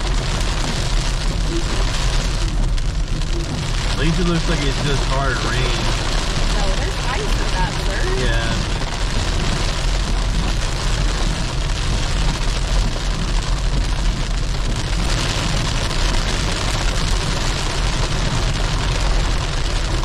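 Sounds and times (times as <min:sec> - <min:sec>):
rain and hail on car: 0:00.0 - 0:20.0
tyres rumbling on wet road: 0:00.0 - 0:20.0.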